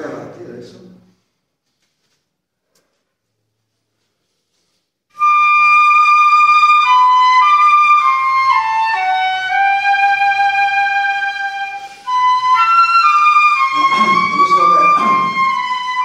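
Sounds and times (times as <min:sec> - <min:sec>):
slow wind instrument melody: 0:05.1 - 0:16.0.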